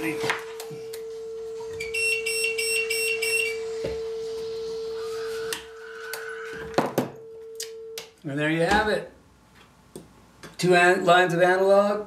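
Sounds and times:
steady electronic test tone: 0:00.0 - 0:07.9
rapid high beeping: 0:01.8 - 0:03.7.

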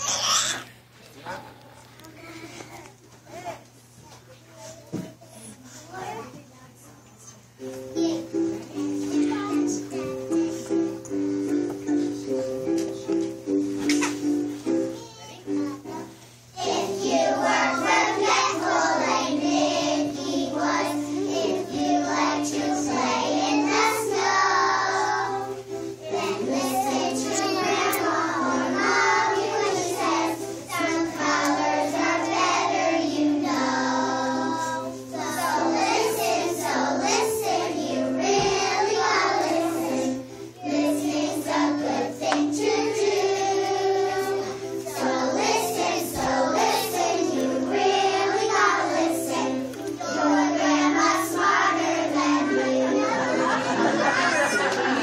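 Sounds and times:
children singing in unison: 0:16.6 - 0:55.0.

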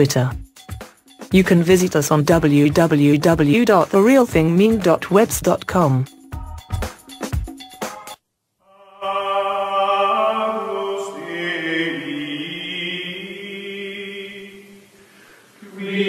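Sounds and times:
choir singing sustained chords: 0:08.7 - 0:16.0.

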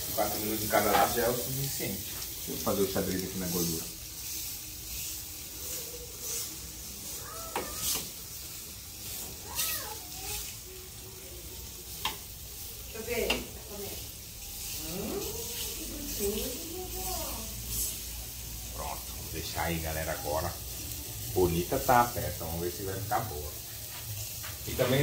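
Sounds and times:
meat sizzling over charcoal: 0:00.0 - 0:25.0
high-pitched voice-like cries: 0:05.6 - 0:08.0, 0:09.4 - 0:10.5.

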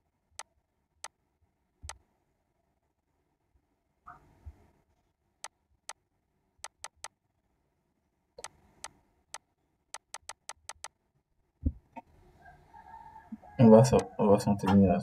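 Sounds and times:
computer mouse clicking: 0:06.6 - 0:07.2, 0:08.4 - 0:11.0.

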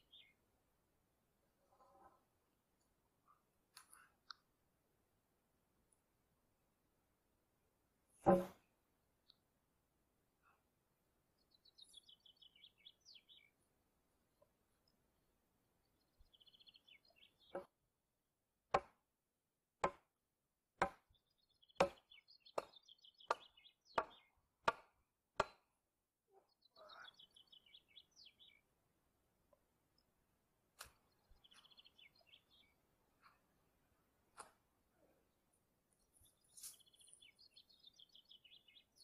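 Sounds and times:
small birds chirping: 0:00.0 - 0:00.4, 0:11.3 - 0:13.6, 0:15.8 - 0:17.7, 0:21.0 - 0:24.6, 0:26.3 - 0:28.8, 0:30.8 - 0:33.5, 0:34.4 - 0:39.0
axe chopping wood: 0:18.8 - 0:19.0, 0:19.8 - 0:20.1, 0:20.8 - 0:21.0, 0:21.8 - 0:22.0, 0:24.0 - 0:25.7.

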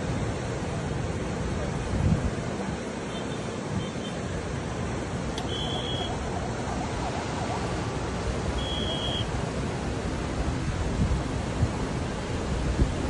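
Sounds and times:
rushing water: 0:00.0 - 0:13.0
short high-pitched beeps: 0:05.4 - 0:06.1, 0:08.5 - 0:09.3.

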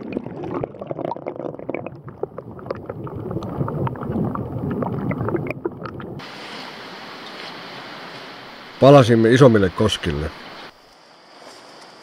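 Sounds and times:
muffled underwater stream gurgling: 0:00.0 - 0:06.6
steady rushing hiss: 0:06.2 - 0:12.0.

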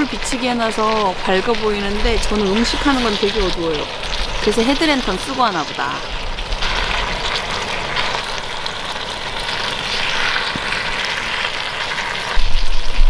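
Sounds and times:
gas burner hissing: 0:00.0 - 0:13.0
meat sizzling in a pan: 0:00.0 - 0:13.0.

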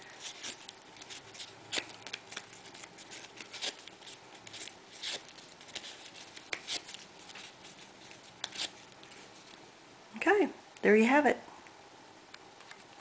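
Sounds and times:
paper petals rustling and crinkling: 0:00.0 - 0:09.6.

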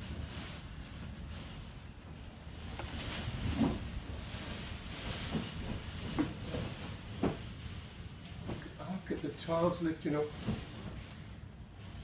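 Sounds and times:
strong wind: 0:00.0 - 0:08.7.

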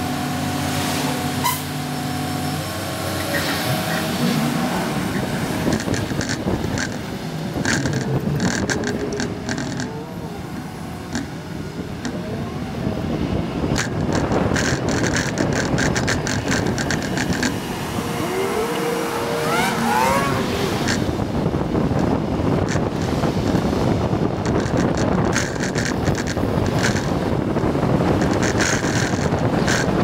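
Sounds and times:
road noise from moving vehicle: 0:00.0 - 0:30.0
short rising whine: 0:17.6 - 0:21.2.

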